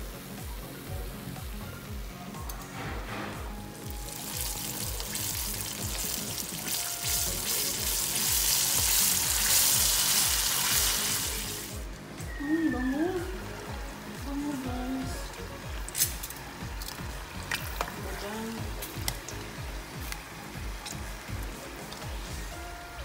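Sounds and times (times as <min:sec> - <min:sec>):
background music with steady beat: 0:00.0 - 0:23.0
chicken sizzling in hot oil: 0:03.5 - 0:12.2, 0:13.3 - 0:23.0.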